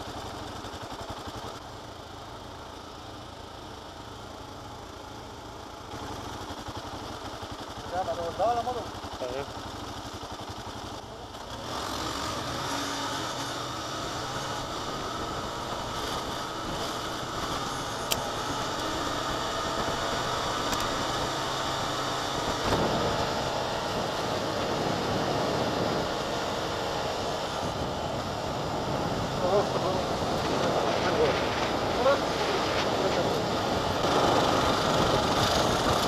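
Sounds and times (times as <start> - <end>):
sped-up motorcycle rushing noise: 10.0 - 36.0.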